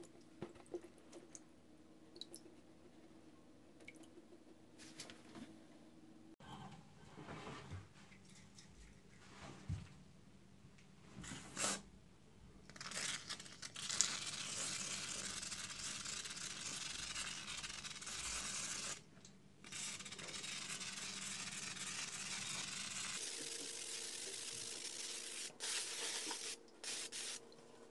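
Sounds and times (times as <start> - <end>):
aerosol can spraying: 22.6 - 27.4.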